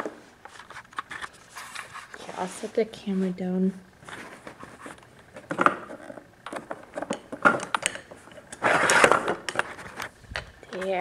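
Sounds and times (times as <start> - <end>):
rustling scrape: 0.2 - 6.1, 8.2 - 11.0.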